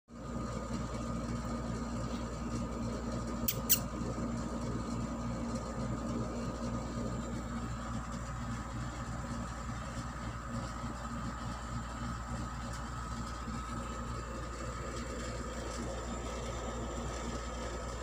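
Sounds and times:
machine humming with low rumble: 0:00.1 - 0:18.0
sharp high-pitched squeaks: 0:03.5 - 0:03.8.

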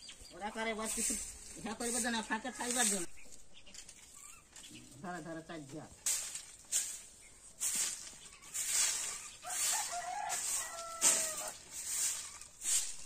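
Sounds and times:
broom sweeping dirt ground: 0:00.0 - 0:13.0
chicken calling: 0:07.4 - 0:13.0.

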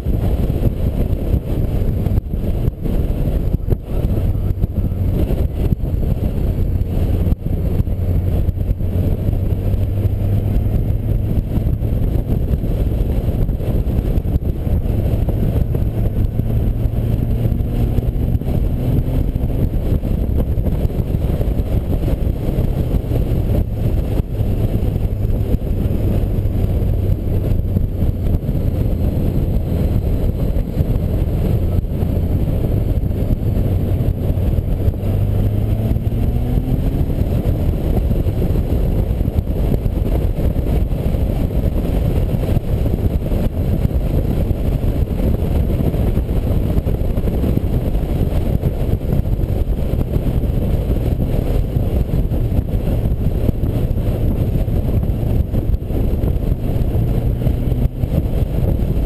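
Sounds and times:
motorcycle engine drone: 0:00.0 - 0:59.0
wind rush on microphone: 0:00.0 - 0:59.0.

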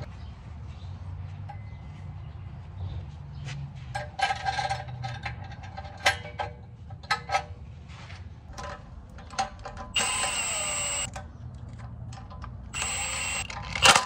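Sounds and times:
metal parts clicking and clinking: 0:08.5 - 0:14.0
impact wrench whining: 0:09.9 - 0:11.1, 0:12.7 - 0:14.0.

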